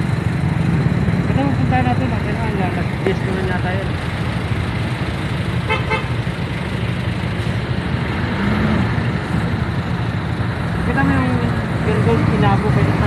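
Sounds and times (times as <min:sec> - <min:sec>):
motorcycle engines rumbling: 0:00.0 - 0:13.0
vehicle horn beeps: 0:05.7 - 0:06.1.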